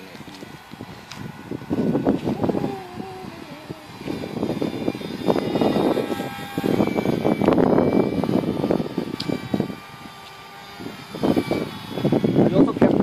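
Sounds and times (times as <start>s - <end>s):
faint steady whine: 0.0s - 13.0s
model plane motor buzzing: 0.0s - 13.0s
wind noise on microphone: 0.0s - 13.0s.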